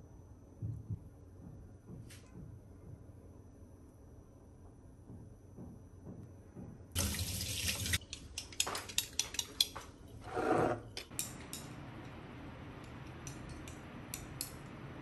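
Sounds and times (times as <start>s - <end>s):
bowl scraping on countertop: 10.2s - 11.0s.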